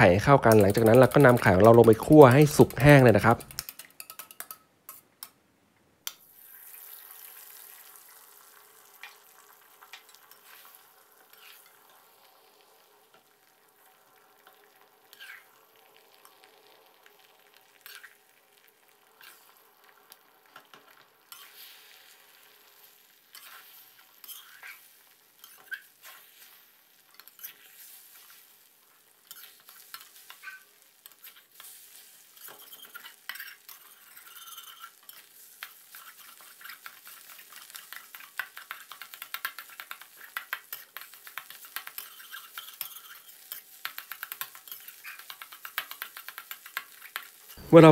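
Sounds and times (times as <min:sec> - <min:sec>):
eggs sizzling in oil: 0:00.0 - 0:05.4, 0:06.1 - 0:47.9
metal spatula scraping a wok: 0:10.3 - 0:11.8, 0:15.1 - 0:15.5, 0:17.8 - 0:18.2, 0:21.3 - 0:22.0, 0:23.3 - 0:28.5, 0:29.2 - 0:39.0, 0:39.6 - 0:46.0.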